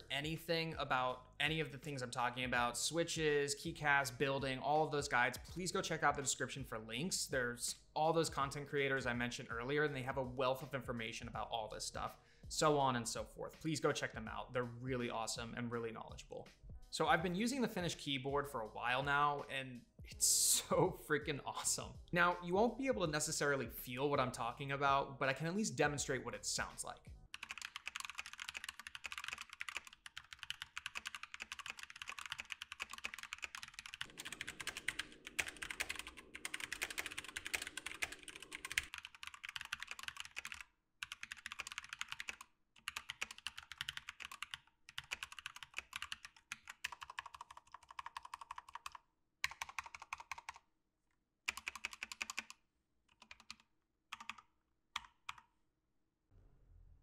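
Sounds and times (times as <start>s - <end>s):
mechanical keyboard typing: 27.4s - 50.6s, 51.5s - 55.4s.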